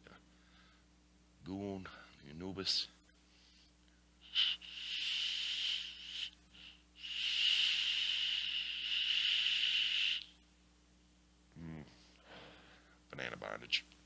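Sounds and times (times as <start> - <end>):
e-cigarette hissing draws: 4.2 - 10.3.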